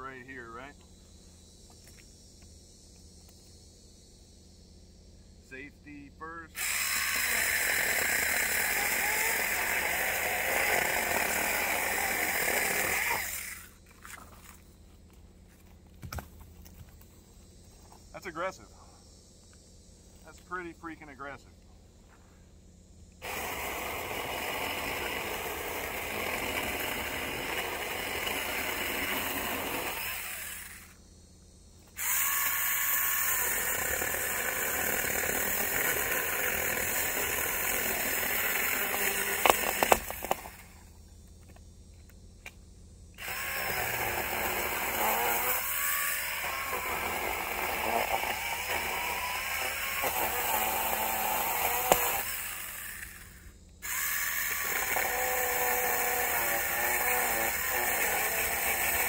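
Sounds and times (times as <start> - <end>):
electric chainsaw cutting log: 6.6 - 14.6, 23.2 - 31.0, 31.8 - 40.9, 43.2 - 59.0
wood cracking: 37.0 - 40.6.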